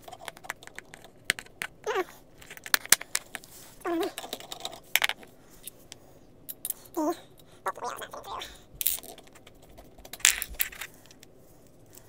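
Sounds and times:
person humming: 1.8s - 2.1s, 7.0s - 8.6s
metal and plastic parts clicking: 8.8s - 11.3s.

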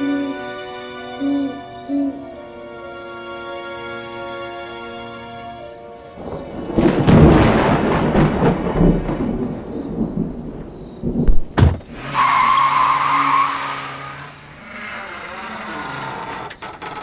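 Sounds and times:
thunder rumbling and cracking: 6.2s - 12.1s.

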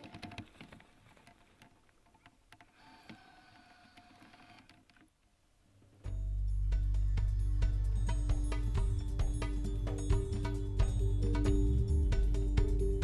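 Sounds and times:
background music: 6.1s - 13.0s.

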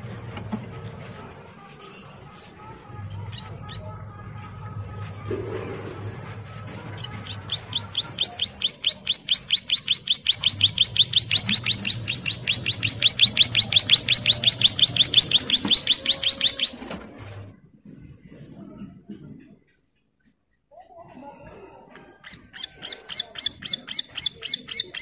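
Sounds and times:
bird trilling: 7.0s - 17.0s, 22.3s - 25.0s.

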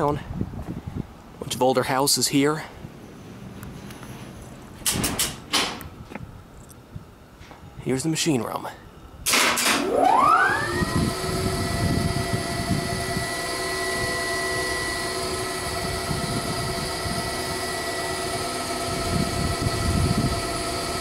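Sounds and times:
elevator motor whine: 9.6s - 21.0s.

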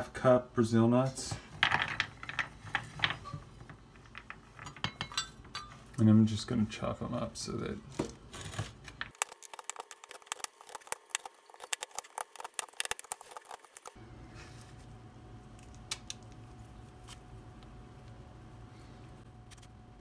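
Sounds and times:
steady low hum: 0.0s - 20.0s
nut pieces crunching: 8.3s - 14.0s
knife chopping nuts on wood: 9.0s - 14.0s.

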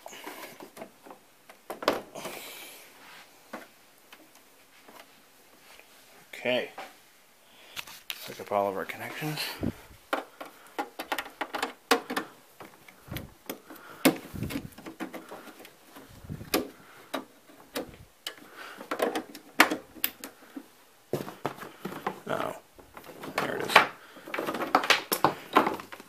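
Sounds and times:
cable plugs clicking into ports: 10.2s - 15.8s, 16.4s - 20.4s.

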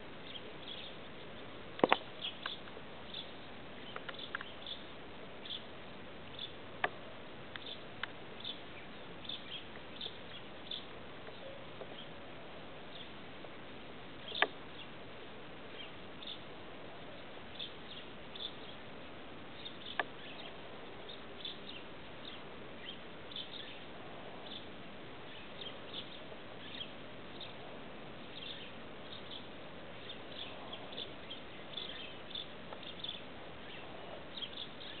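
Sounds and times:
steady hiss: 0.0s - 35.0s.

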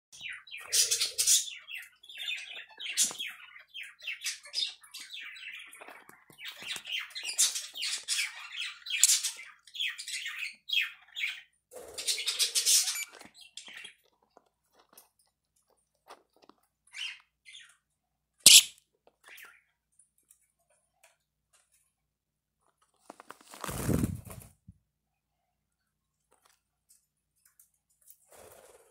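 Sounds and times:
lovebirds chattering and squawking: 0.2s - 14.0s, 18.5s - 19.6s.

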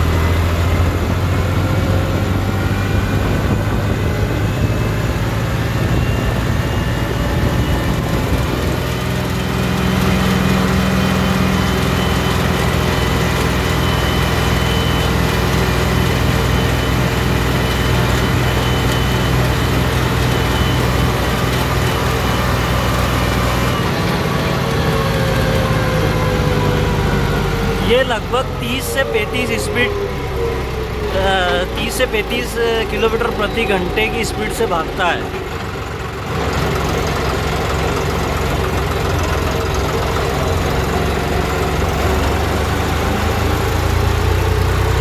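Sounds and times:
tractor diesel engine running: 0.0s - 45.0s.

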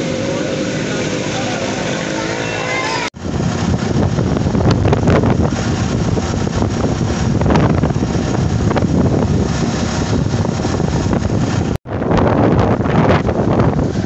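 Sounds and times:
vehicle running: 0.0s - 14.0s
wind buffeting microphone: 3.2s - 14.0s.

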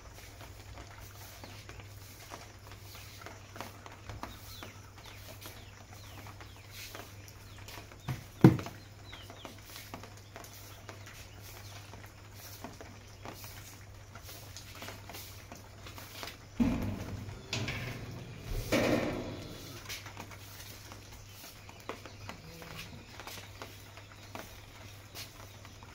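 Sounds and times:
broom sweeping concrete: 1.0s - 3.7s, 12.3s - 15.4s
heavy thump: 16.6s - 19.9s
sharp knock: 16.6s - 19.9s.

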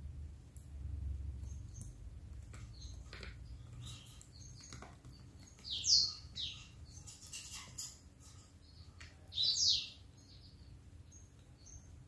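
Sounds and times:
canary chirping: 1.0s - 12.0s.

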